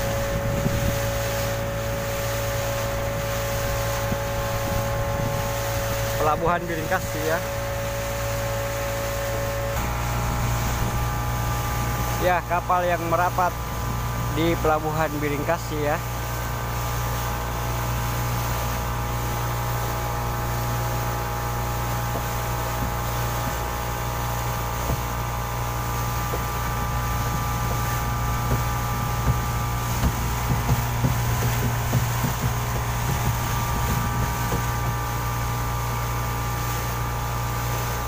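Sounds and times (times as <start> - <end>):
outboard motor running: 0.0 - 38.0
light knocks: 28.4 - 34.8.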